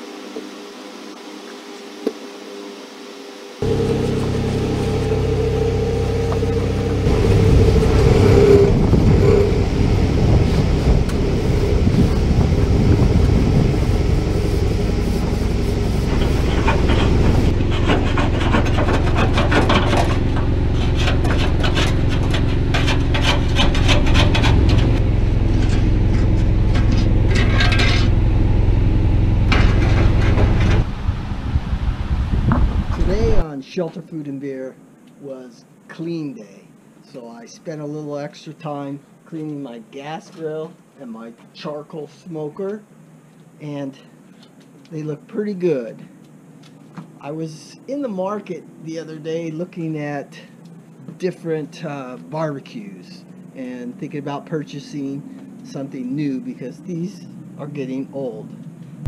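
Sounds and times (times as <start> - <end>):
grill being scrubbed: 3.6 - 28.2
steady low rumble: 3.6 - 33.4.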